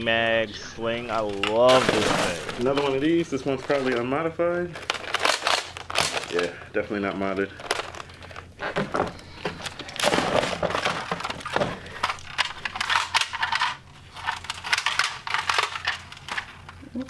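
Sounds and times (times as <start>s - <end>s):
hard plastic clattering and knocking: 8.6s - 16.5s.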